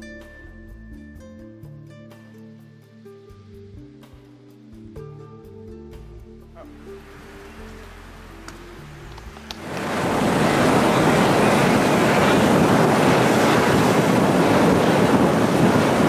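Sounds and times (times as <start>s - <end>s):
helicopter flying overhead: 9.6s - 16.0s.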